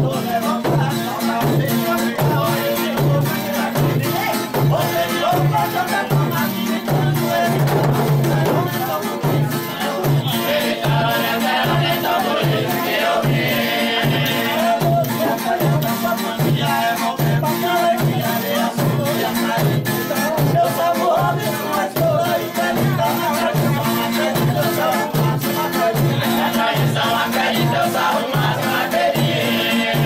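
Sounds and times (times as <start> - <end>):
frame drums beating: 0.0 - 30.0
men singing together: 0.0 - 30.0.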